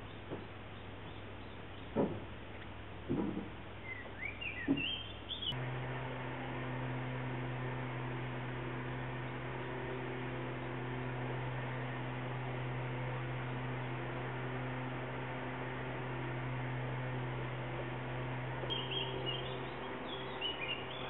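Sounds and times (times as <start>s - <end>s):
soft knocks: 1.9s - 2.3s, 3.1s - 3.6s
steady electrical hum: 5.1s - 21.0s
short rising bird chirps: 18.7s - 21.0s.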